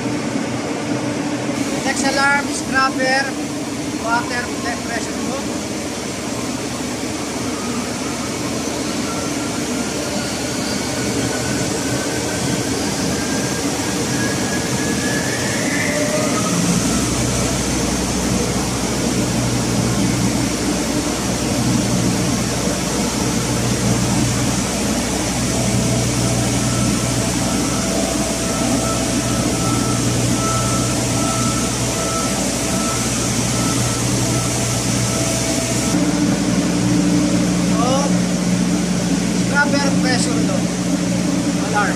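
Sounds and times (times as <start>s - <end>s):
generator plant machinery running: 0.0s - 41.9s
faint whine: 7.3s - 38.5s.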